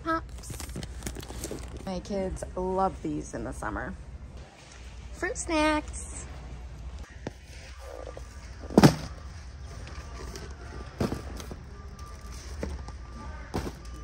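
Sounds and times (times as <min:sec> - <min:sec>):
cardboard boxes thumping down: 0:08.7 - 0:09.2.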